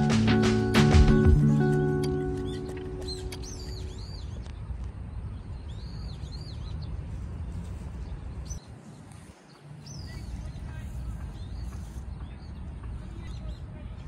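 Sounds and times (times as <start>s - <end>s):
small birds chirping: 1.3s - 14.0s.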